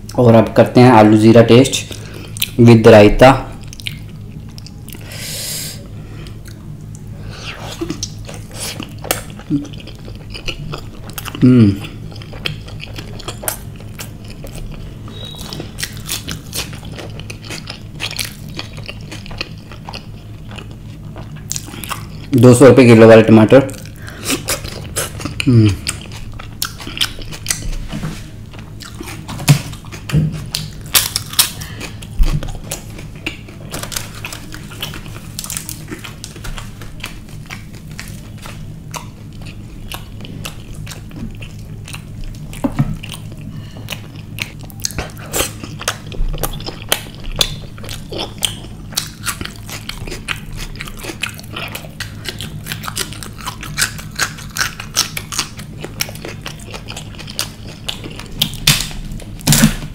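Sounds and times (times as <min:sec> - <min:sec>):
faint low hum: 0:00.0 - 0:59.9
mouth chewing and biting: 0:07.4 - 0:22.3, 0:23.7 - 0:27.9, 0:28.5 - 0:59.9.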